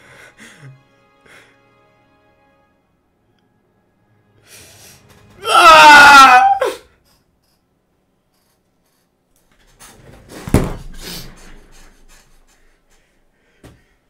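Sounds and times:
dull thump: 0:10.3 - 0:11.3.

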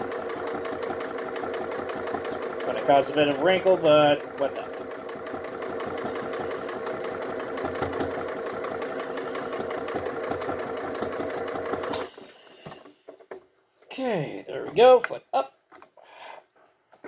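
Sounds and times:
sewing machine motor whining: 0:00.0 - 0:13.0
sewing needle stitching cloth: 0:00.0 - 0:13.0.

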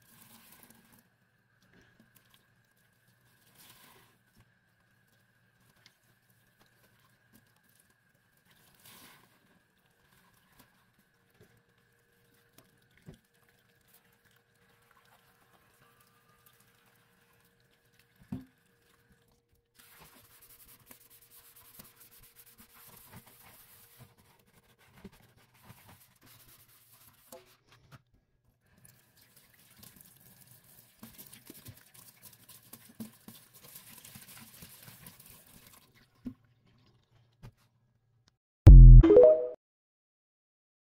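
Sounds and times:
wet sponge squelching in sink: 0:19.8 - 0:27.3.

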